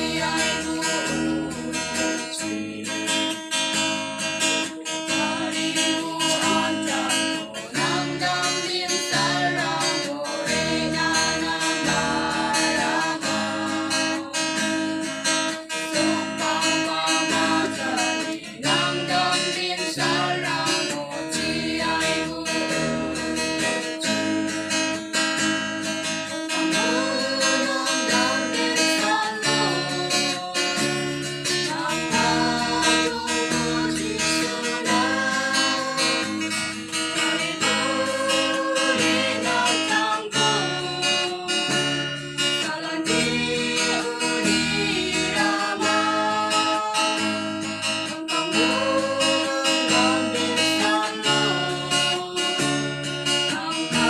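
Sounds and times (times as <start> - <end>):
group singing together: 0.0 - 54.0
strummed acoustic guitar: 0.0 - 54.0.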